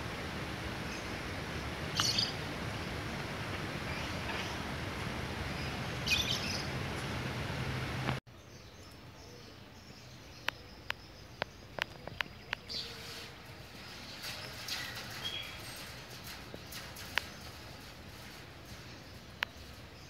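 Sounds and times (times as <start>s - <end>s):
diesel locomotive engine hum: 0.0s - 8.2s
outdoor rumble: 0.0s - 8.2s, 11.9s - 20.0s
birds chirping: 0.0s - 20.0s.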